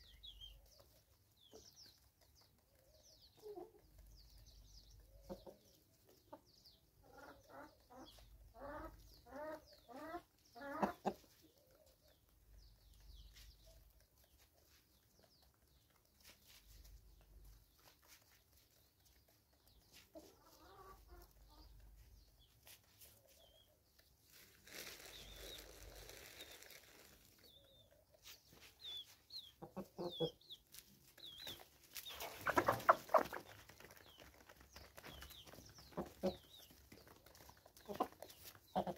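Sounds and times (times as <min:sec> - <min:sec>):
hens and roosters clucking: 0:00.0 - 0:38.9.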